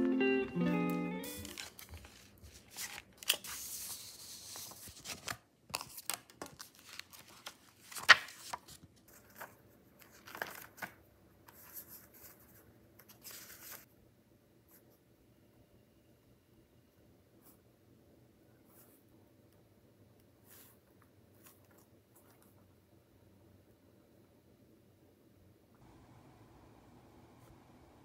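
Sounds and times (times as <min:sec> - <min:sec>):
paper rustling and pages flipping: 0:01.2 - 0:13.9.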